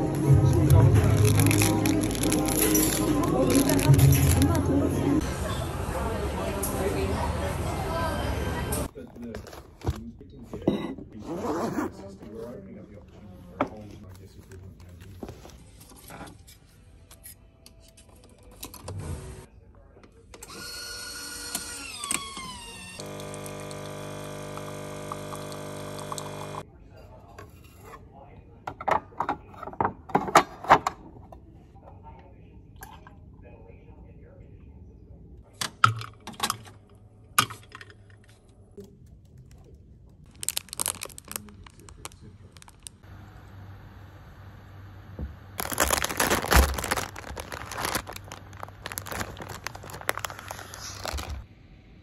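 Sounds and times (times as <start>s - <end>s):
plastic bag crinkling: 0.8s - 4.6s, 40.3s - 43.0s, 45.6s - 51.5s
coffee machine whine: 20.4s - 26.6s
coffee machine humming: 23.0s - 26.6s.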